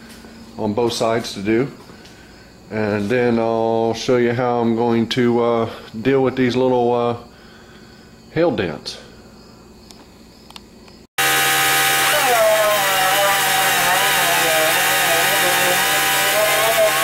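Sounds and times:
orbital sander whirring on metal: 0:11.2 - 0:17.0.

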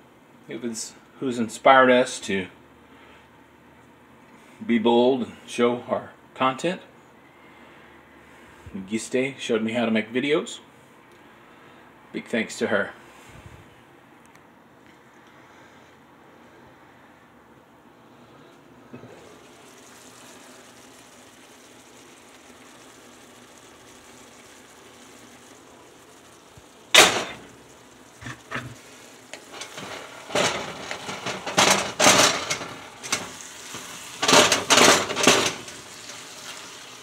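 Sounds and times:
food sizzling in a skillet: 0:19.0 - 0:37.0
sharp metal clank: 0:27.0 - 0:27.4.

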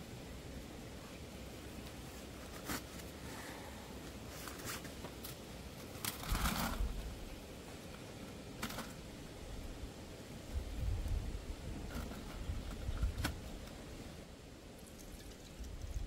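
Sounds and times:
wind buffeting microphone: 0:10.5 - 0:13.5.

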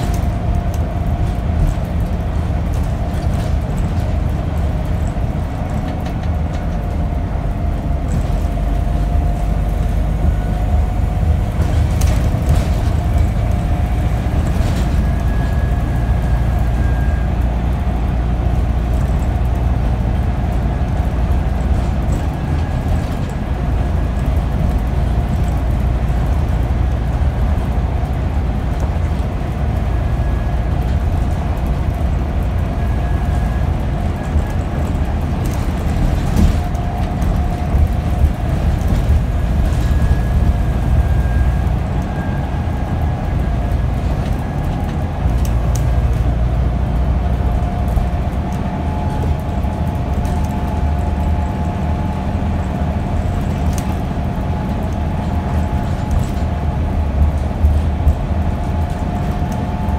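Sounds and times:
bus engine rumbling: 0:00.0 - 0:59.9
whine shifting in pitch: 0:04.4 - 0:59.9.

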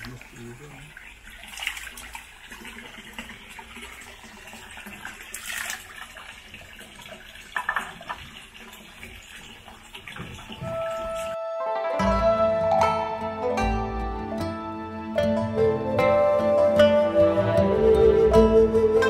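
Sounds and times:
running water: 0:00.0 - 0:11.4.

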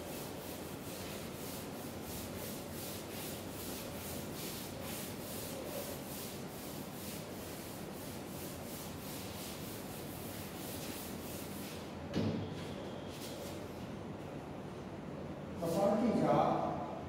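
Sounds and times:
duster scrubbing a blackboard: 0:00.0 - 0:11.9.

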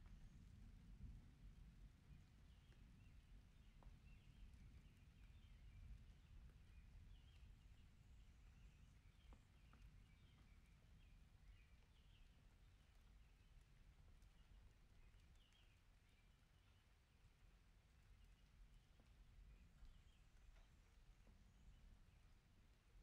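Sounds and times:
faint low rumble: 0:00.0 - 0:23.0.

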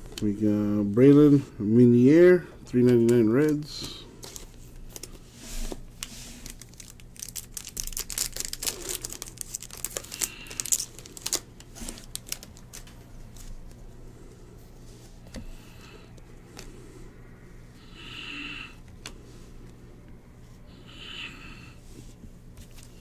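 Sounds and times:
card pack wrapper tearing: 0:06.0 - 0:13.5.

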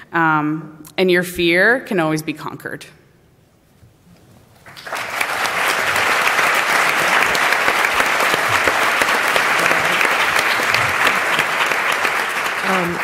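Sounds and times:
audience applauding: 0:04.6 - 0:13.0.

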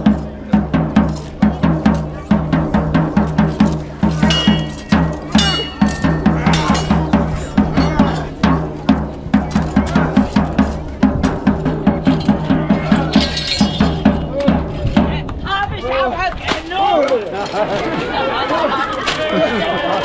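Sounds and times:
drum beating fast rhythm: 0:00.0 - 0:15.6
short ringing clangs: 0:04.3 - 0:07.4, 0:13.0 - 0:14.3.

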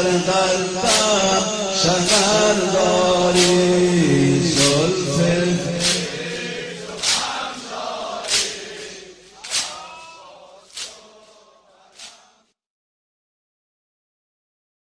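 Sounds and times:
male voices chanting in unison: 0:00.0 - 0:12.6
chest-beating slaps: 0:00.8 - 0:01.2, 0:02.1 - 0:02.5, 0:03.3 - 0:03.9, 0:05.8 - 0:12.3.

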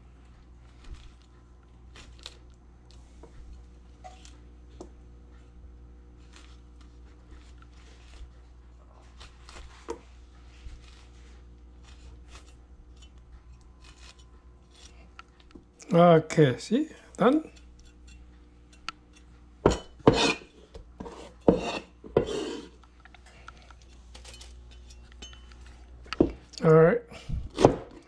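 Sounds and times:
steady low hum: 0:00.0 - 0:28.0
cleaver cutting pineapple: 0:10.8 - 0:15.2.

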